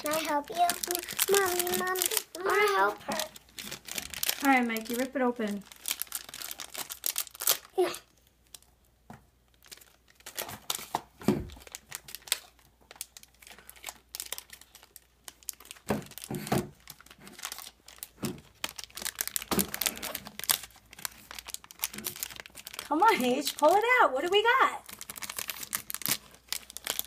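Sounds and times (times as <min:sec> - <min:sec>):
foil packet crinkling and tearing: 0:00.0 - 0:27.0.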